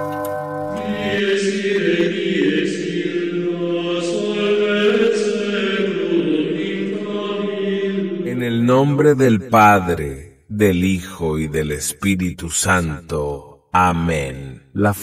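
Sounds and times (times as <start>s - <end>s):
slow chanted singing: 0.6s - 8.5s.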